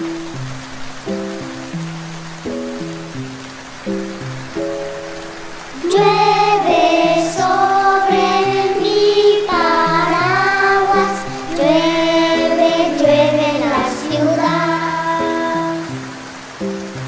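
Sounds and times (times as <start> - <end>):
children's choir singing: 5.3 - 16.8.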